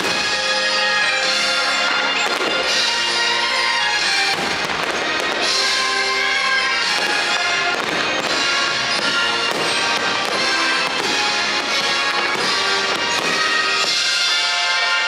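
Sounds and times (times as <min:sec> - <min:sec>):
christmas music playing loudly: 0:00.0 - 0:15.0
faint firework bangs: 0:02.1 - 0:03.0, 0:04.2 - 0:05.8, 0:06.8 - 0:15.0.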